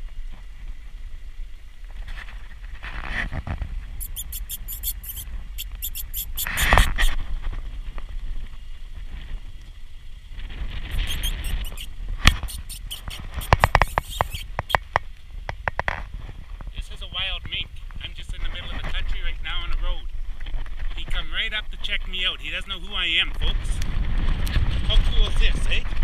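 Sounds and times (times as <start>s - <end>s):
rapid high-pitched squeaks: 4.0s - 7.2s, 10.9s - 14.9s
loud rustle: 10.4s - 14.8s.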